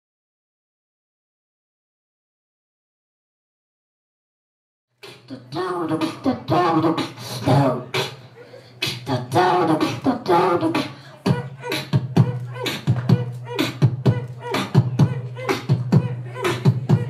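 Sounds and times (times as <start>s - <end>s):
boy beatboxing into microphone: 5.0s - 17.0s.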